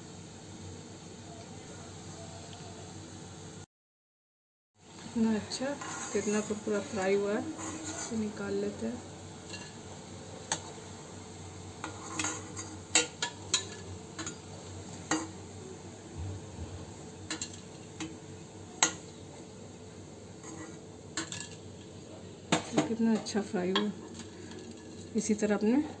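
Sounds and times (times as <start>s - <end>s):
food sizzling in hot oil: 0.0s - 3.7s, 4.8s - 26.0s
metal spoon scraping pan: 5.5s - 8.8s, 11.8s - 15.4s, 17.2s - 18.2s, 20.4s - 21.6s.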